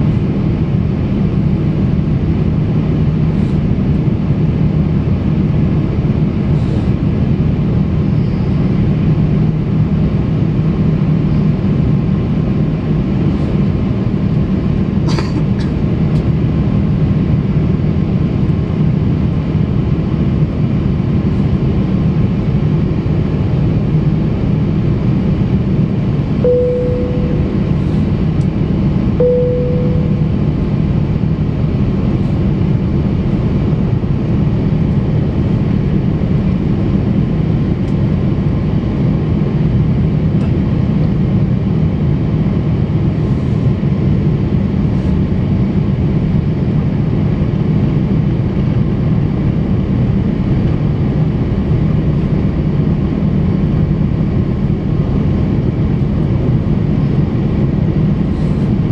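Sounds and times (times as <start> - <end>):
jet engine and airflow rumble: 0.0 - 58.9
low cabin hum: 26.1 - 34.1
short cabin tones: 26.4 - 28.2, 29.2 - 30.5.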